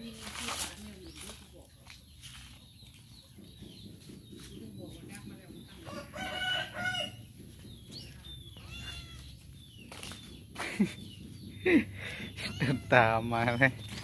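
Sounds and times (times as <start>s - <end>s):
rooster crowing: 5.9s - 7.2s.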